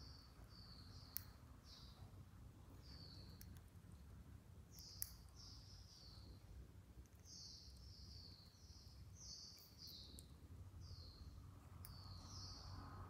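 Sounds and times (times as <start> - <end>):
sunbird chirping: 0.0 - 3.5, 4.7 - 13.0.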